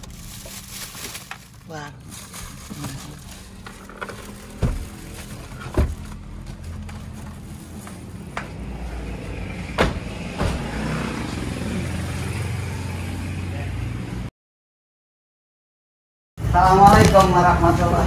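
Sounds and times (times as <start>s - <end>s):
vehicle engine humming: 0.0s - 14.3s
sharp knocks: 9.8s - 10.7s.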